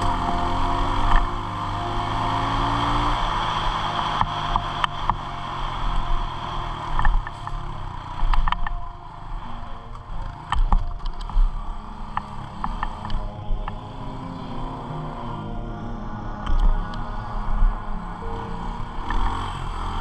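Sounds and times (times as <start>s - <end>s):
sharp clicks and knocks: 6.9s - 7.6s, 8.2s - 8.9s, 9.9s - 11.5s.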